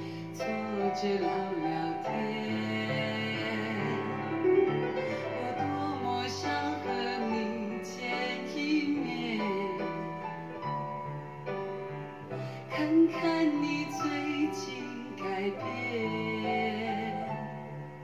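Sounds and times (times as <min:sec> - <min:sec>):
pop ballad with piano over loudspeakers: 0:00.0 - 0:18.0.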